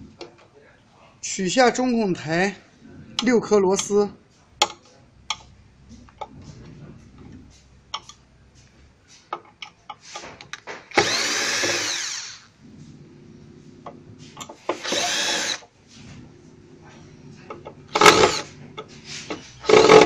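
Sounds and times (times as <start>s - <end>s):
cordless drill running: 10.9s - 12.5s, 14.7s - 15.6s, 18.0s - 18.4s.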